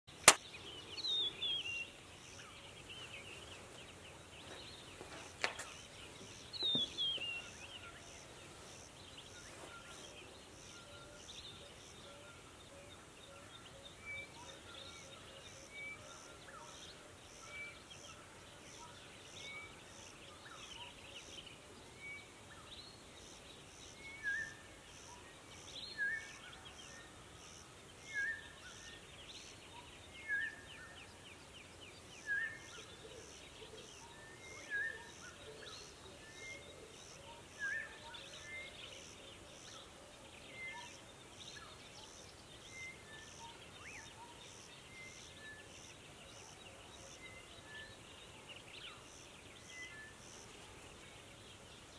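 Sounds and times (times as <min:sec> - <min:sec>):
sharp click: 0:00.2 - 0:00.4.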